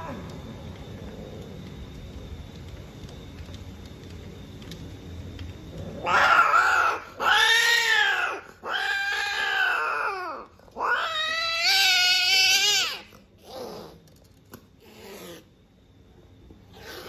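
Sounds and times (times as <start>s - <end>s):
cat yowling: 6.0s - 13.1s.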